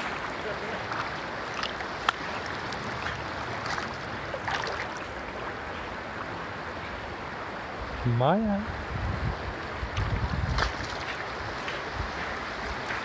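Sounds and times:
small splashes: 0.0s - 5.8s, 9.9s - 11.3s
river water rushing: 0.0s - 13.0s.

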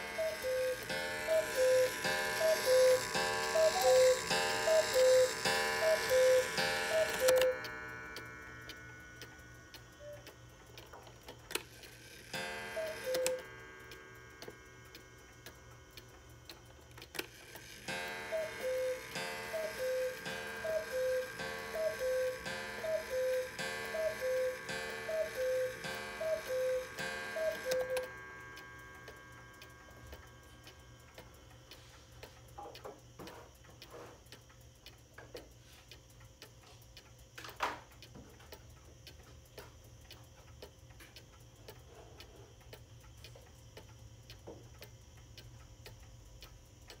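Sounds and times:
clock strike: 0.0s - 10.4s, 11.5s - 15.5s, 17.2s - 31.1s
cuckoo clock call: 0.0s - 31.7s
clock ticking: 0.0s - 47.0s.

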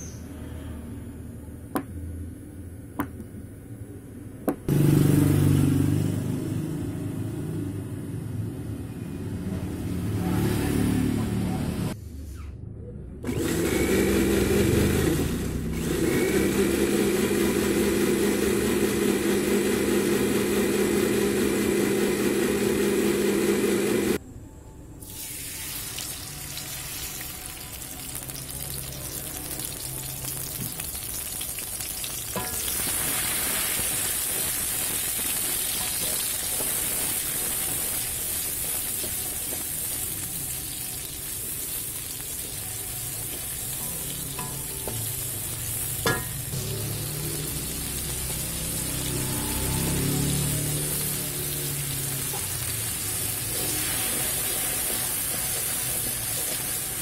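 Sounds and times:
blender motor running: 13.3s - 24.2s, 42.2s - 57.0s
paste sizzling in hot oil: 25.1s - 57.0s
wooden spatula stirring in wok: 53.5s - 57.0s.

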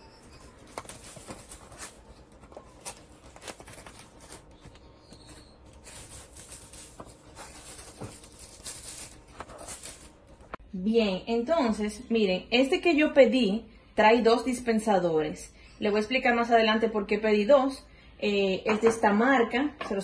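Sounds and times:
plastic wrapping rustling: 0.0s - 10.6s.

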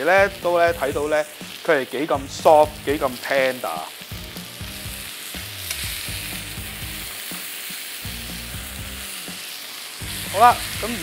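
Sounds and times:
steaks sizzling in a pan: 0.0s - 11.0s
tongs moving meat in pan: 2.8s - 11.0s.

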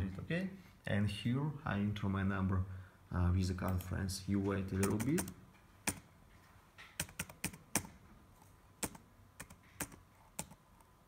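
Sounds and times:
laptop keyboard typing: 4.7s - 6.1s, 6.9s - 10.9s.

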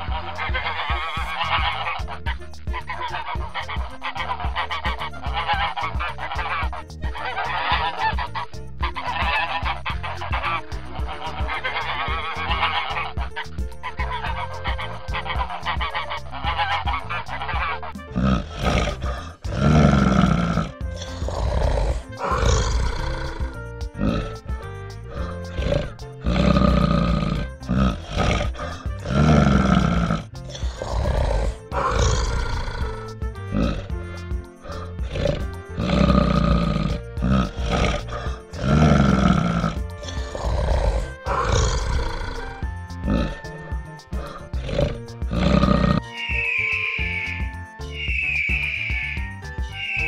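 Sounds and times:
animal's deep loud calls: 0.0s - 50.0s
background music: 0.0s - 50.0s
waterfowl honking: 0.1s - 10.6s, 13.9s - 18.0s.

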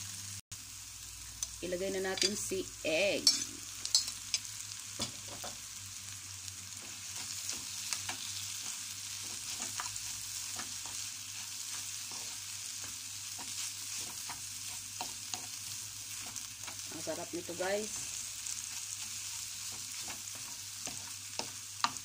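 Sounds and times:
food sizzling in a pan: 0.0s - 22.0s
spatula scraping a pan: 6.7s - 22.0s.

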